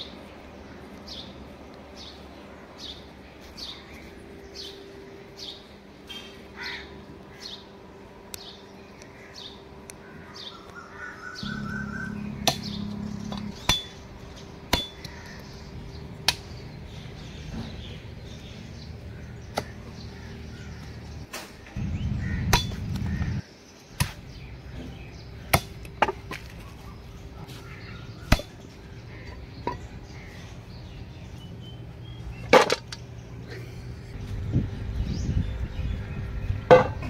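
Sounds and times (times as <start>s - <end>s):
bird chirping: 0.0s - 37.0s
cleaver striking on wooden block: 12.4s - 14.0s, 14.7s - 15.2s, 22.5s - 22.8s, 25.5s - 26.5s, 28.3s - 28.6s.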